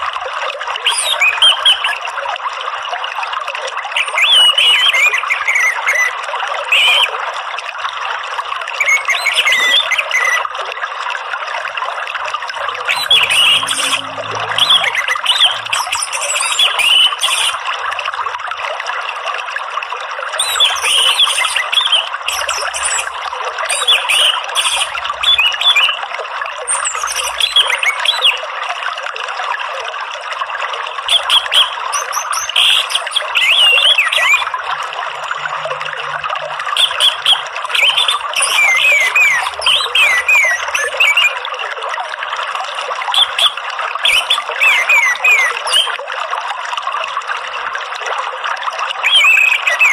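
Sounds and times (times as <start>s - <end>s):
trickling water: 0.0s - 49.9s
thrush song and chirps: 12.9s - 17.6s.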